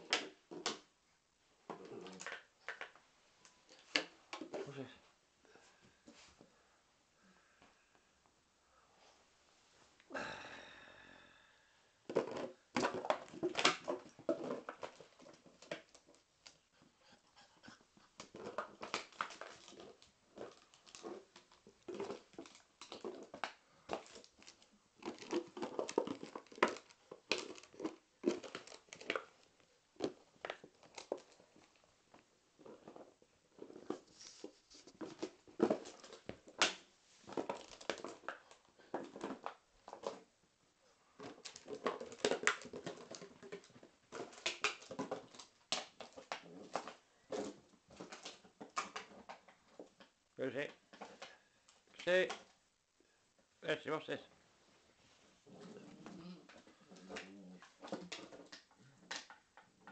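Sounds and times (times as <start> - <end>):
plastic bottle crinkling: 12.0 - 16.6, 17.6 - 40.3, 41.2 - 50.2, 55.5 - 59.9
puppy scuffling and chewing: 12.2 - 40.3, 54.8 - 59.9.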